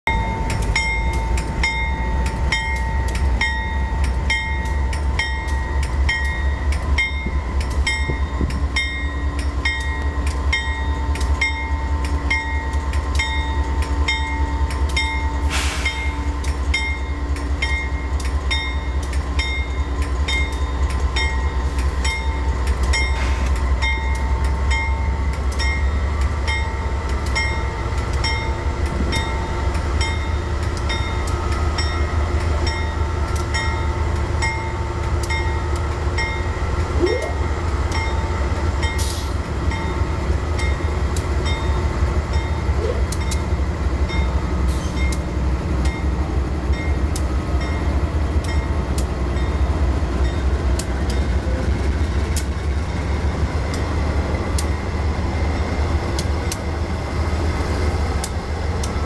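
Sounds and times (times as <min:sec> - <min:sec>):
diesel locomotive rumble: 0:00.0 - 0:59.0
railroad crossing bell ringing: 0:00.1 - 0:54.6.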